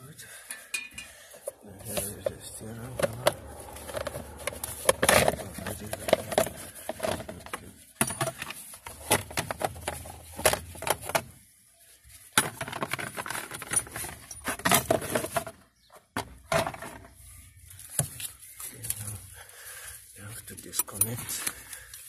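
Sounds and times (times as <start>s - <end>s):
hand tools clicking and rattling: 0.3s - 11.2s, 12.4s - 15.4s, 20.6s - 22.0s.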